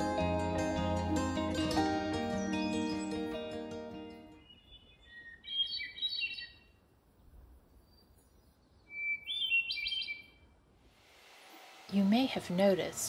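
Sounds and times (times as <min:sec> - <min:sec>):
songbird chirping: 0:02.2 - 0:10.6
faint outdoor background hiss: 0:03.9 - 0:13.0.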